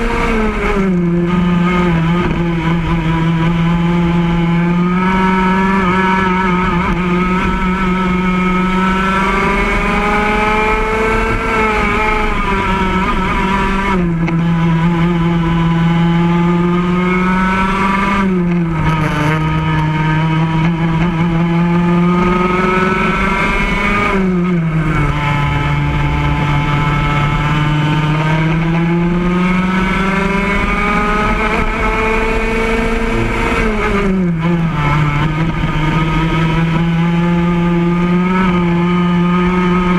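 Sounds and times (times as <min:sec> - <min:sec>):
go-kart engine revving: 0:00.0 - 0:39.9.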